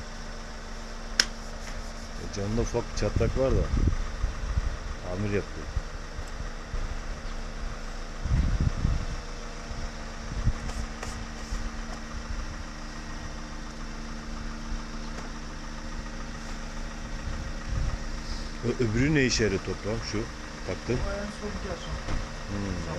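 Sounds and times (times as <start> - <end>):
motor humming: 0.7 - 22.9
low rumble: 1.8 - 13.5, 15.7 - 19.2.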